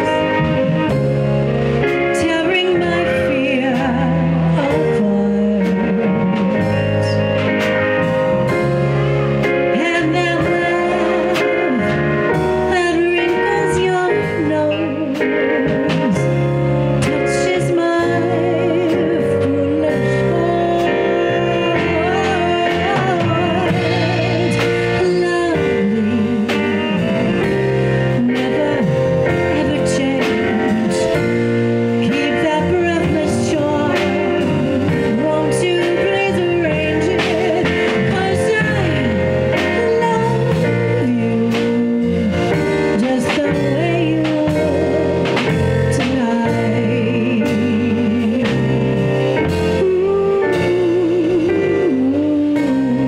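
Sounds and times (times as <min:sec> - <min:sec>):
bass: 0:00.0 - 0:53.0
drums: 0:00.0 - 0:53.0
keyboard chords: 0:00.0 - 0:53.0
lead melody with vibrato: 0:00.0 - 0:53.0.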